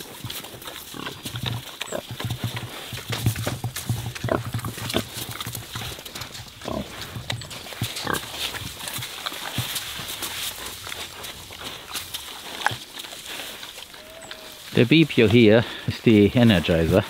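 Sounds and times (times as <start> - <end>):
pigs grunting: 0.0 - 17.0
pig drawn-out calls: 6.6 - 15.9.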